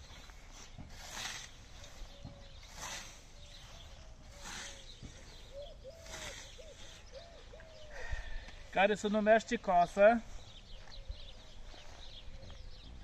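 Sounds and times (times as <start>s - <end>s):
scythe swishing through grass: 0.0s - 7.0s.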